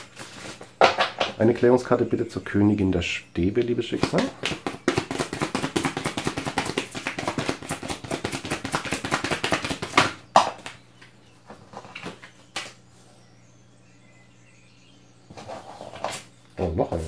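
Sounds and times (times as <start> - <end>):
cards being shuffled: 4.0 - 10.8
cards slapping down: 4.0 - 10.8
cards sliding and tapping: 4.0 - 10.8.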